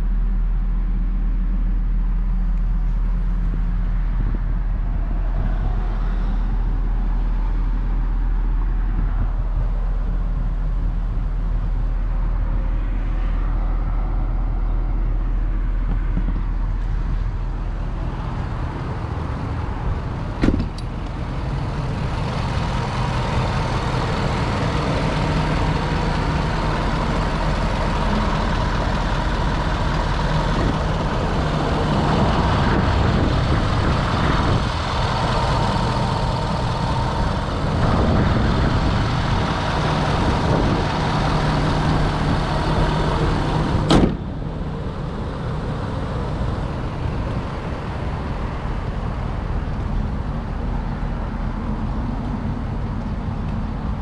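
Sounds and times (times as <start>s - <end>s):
diesel engine idling: 0.0s - 54.0s
hood slamming shut: 20.4s - 20.9s, 43.7s - 44.4s.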